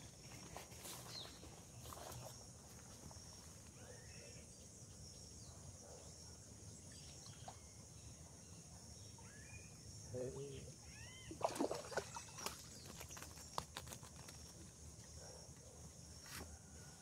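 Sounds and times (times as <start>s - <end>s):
insects trilling: 0.0s - 17.0s
faint bird calls: 9.2s - 11.4s.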